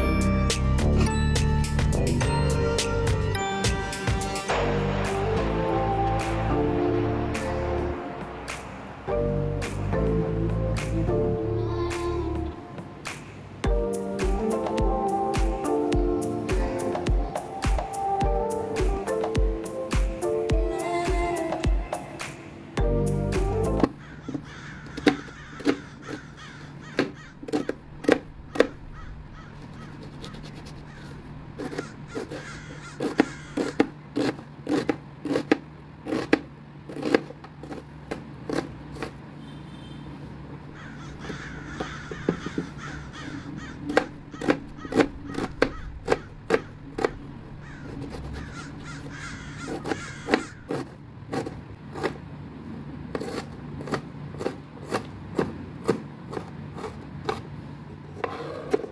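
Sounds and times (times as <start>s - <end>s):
knife chopping on cutting board: 29.7s - 39.2s, 43.9s - 52.2s, 53.1s - 57.4s.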